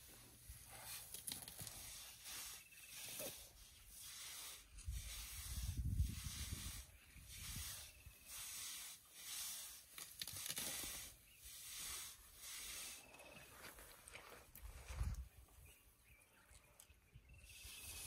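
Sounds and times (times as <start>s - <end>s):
leaves and twigs rustling and tearing: 9.7s - 11.1s.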